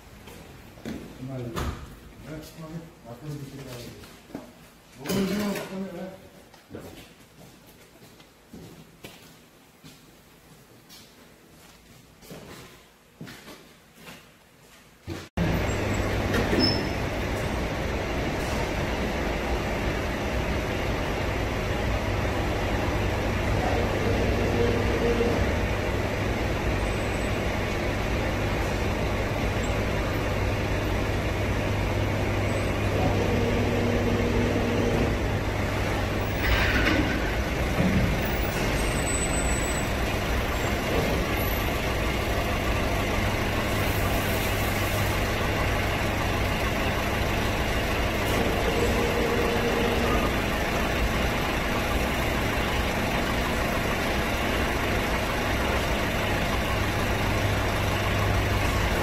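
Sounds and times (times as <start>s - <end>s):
rollers turning truck wheels: 15.4s - 59.0s.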